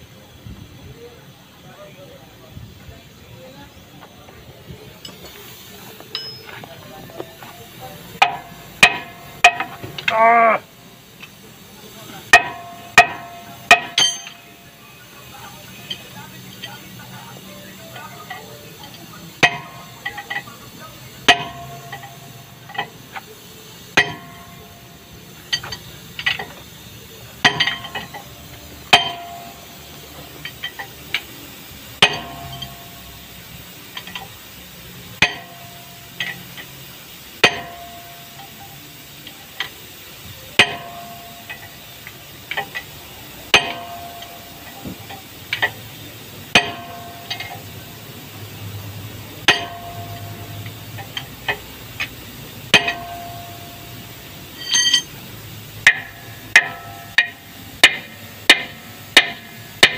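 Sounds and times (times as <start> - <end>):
hammer striking steel bar: 6.1 - 6.6, 8.2 - 10.2, 12.3 - 14.5, 19.4 - 20.4, 21.3 - 22.9, 24.0 - 24.6, 27.4 - 28.2, 28.9 - 29.6, 32.0 - 32.9, 35.2 - 36.4, 37.4 - 38.5, 40.6 - 41.7, 43.5 - 44.8, 46.5 - 47.6, 49.4 - 51.6, 52.7 - 53.8, 54.6 - 55.2, 55.8 - 59.9.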